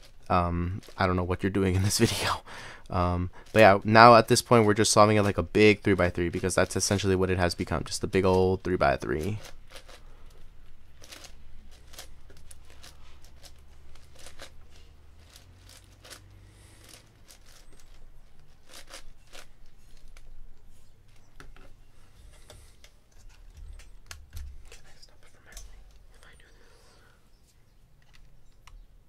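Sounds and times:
plastic puzzle cube clicking: 0:08.2 - 0:20.7.

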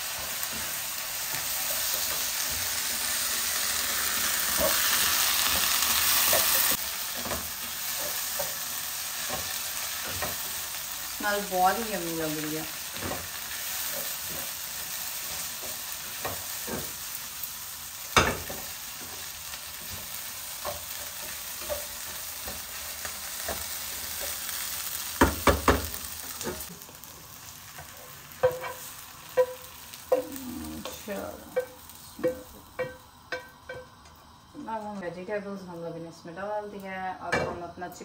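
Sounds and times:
vegetables sizzling in a pan: 0:00.0 - 0:38.0
utensil knocking on pan: 0:25.2 - 0:25.9, 0:31.5 - 0:33.9.

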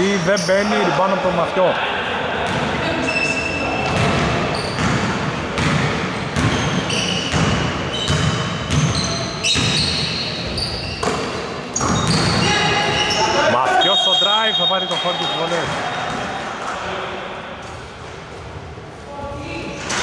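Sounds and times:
sneakers squeaking: 0:00.0 - 0:01.0, 0:02.4 - 0:16.4.

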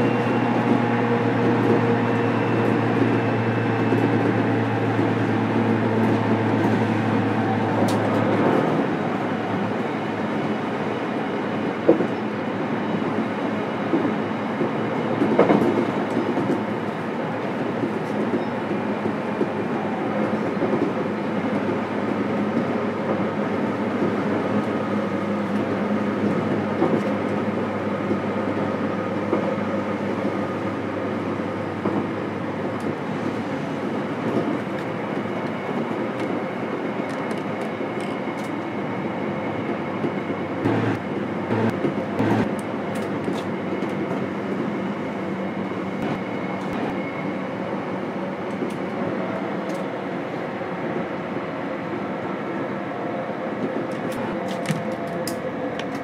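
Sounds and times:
train wheels rumbling on rails: 0:00.0 - 0:56.0
traction motor hum: 0:40.6 - 0:42.5.

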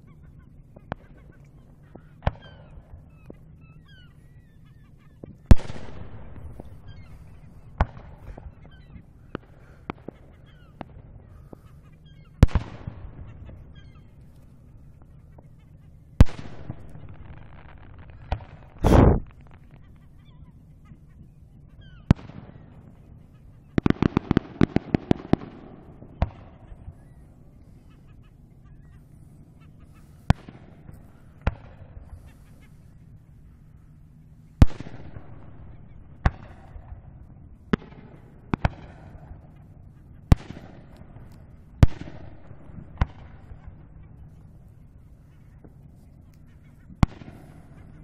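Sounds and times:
volley of sharp firework reports: 0:00.1 - 0:48.0
distant firework booms with echo: 0:05.1 - 0:15.6, 0:16.2 - 0:20.5, 0:21.8 - 0:27.9, 0:29.6 - 0:32.6, 0:34.6 - 0:44.8, 0:46.9 - 0:48.0.

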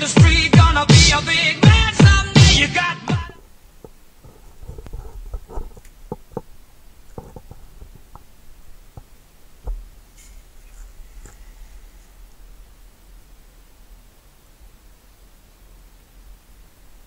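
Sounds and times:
faint rustling: 0:03.4 - 0:17.0.

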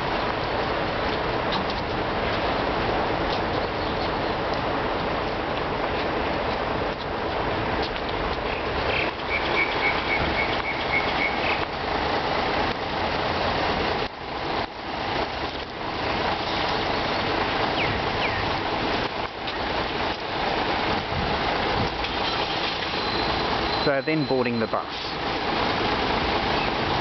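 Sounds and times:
traffic noise: 0:00.0 - 0:27.0
high beeps: 0:23.0 - 0:24.8.

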